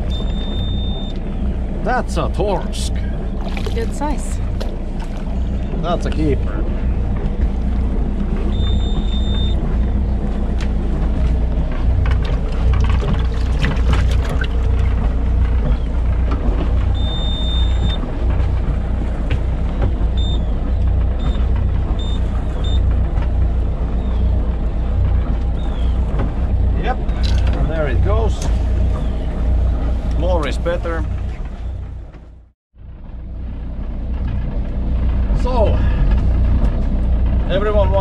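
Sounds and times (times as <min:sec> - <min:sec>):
boat engine rumble: 0:00.0 - 0:38.0
electronic beeping: 0:08.5 - 0:09.6.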